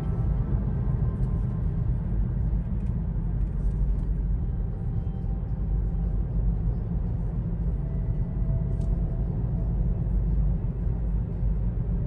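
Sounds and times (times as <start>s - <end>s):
road and tyre rumble in car: 0.0s - 12.0s.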